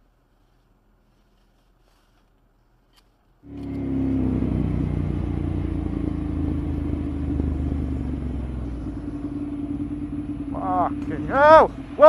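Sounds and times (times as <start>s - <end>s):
road and wind noise: 3.4s - 12.0s
vehicle engine running: 3.4s - 12.0s.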